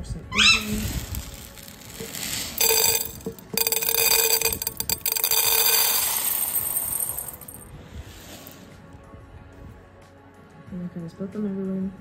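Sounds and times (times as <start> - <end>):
pellets clattering into metal bowl: 0.6 - 7.7
metal bowl ringing: 2.6 - 7.6.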